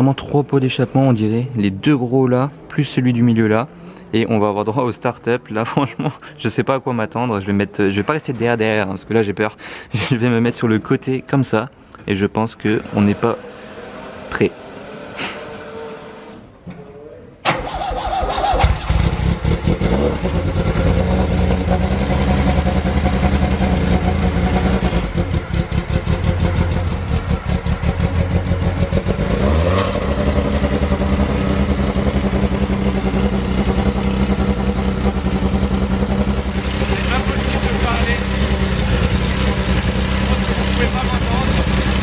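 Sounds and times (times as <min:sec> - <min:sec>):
car engine starting and idling: 0:12.5 - 0:42.0.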